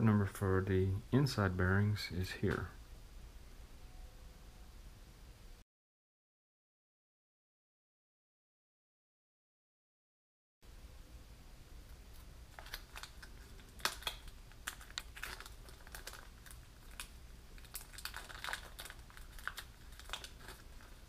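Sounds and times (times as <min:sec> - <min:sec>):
plastic bag crinkling: 0:11.9 - 0:21.0.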